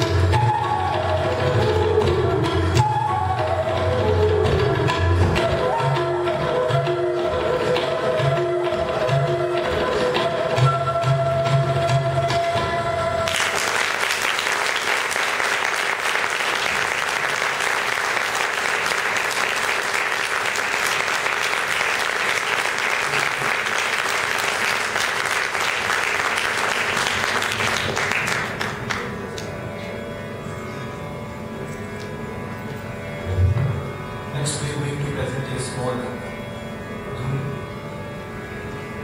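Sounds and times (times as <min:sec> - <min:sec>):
tabla: 0:00.0 - 0:39.0
audience applause: 0:13.3 - 0:29.5.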